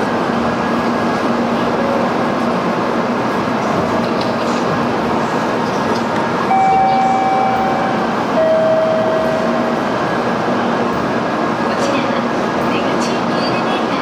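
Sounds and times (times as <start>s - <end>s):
train running hum: 0.0s - 14.0s
long electronic tones: 6.5s - 9.8s.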